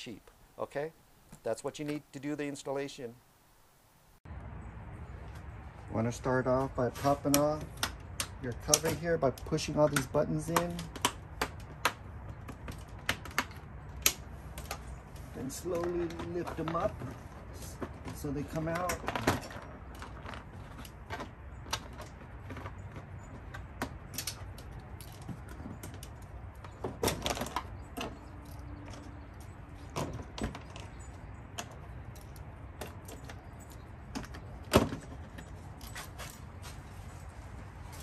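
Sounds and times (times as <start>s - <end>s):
plastic clips clicking and snapping: 7.2s - 12.0s.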